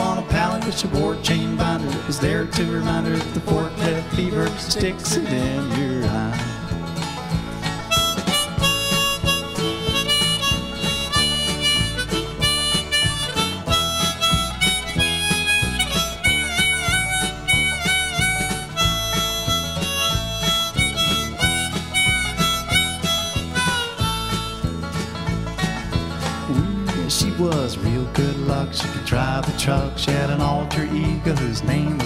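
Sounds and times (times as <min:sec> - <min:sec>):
country-rock band playing: 0:00.0 - 0:32.0
harmonica solo: 0:06.9 - 0:26.8.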